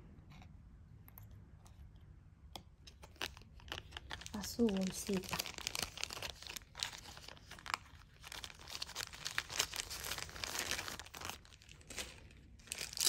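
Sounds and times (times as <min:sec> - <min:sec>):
plastic bag crinkling: 0:03.1 - 0:13.0.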